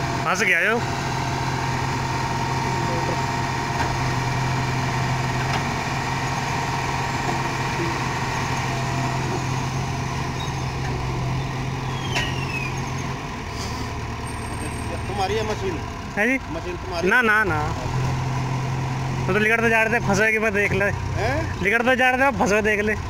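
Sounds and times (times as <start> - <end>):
diesel engine running: 0.0 - 23.0
short falling squeal: 10.4 - 10.8, 11.8 - 13.2.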